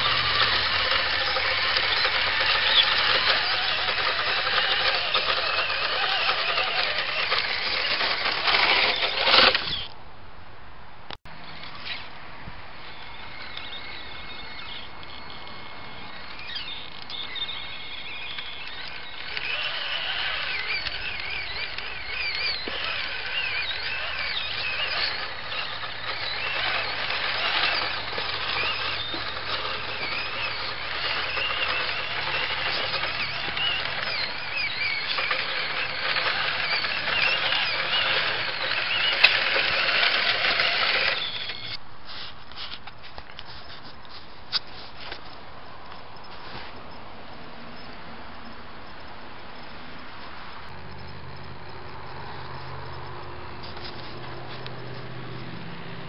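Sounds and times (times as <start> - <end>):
toy truck electric motor whining: 0.0 - 9.9, 12.8 - 42.8.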